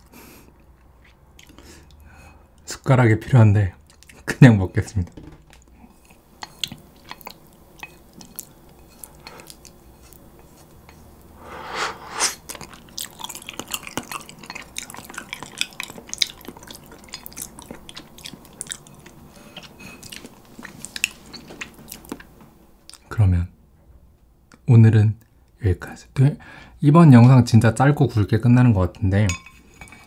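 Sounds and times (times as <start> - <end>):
wet chewing and lip smacks: 6.0 - 10.2, 12.4 - 23.0
noodle slurp: 11.4 - 14.3.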